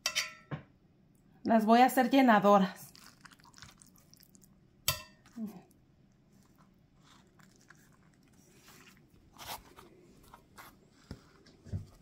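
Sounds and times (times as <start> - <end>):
food being handled: 2.9 - 5.6, 6.2 - 12.0
rustling scrape: 6.3 - 11.6.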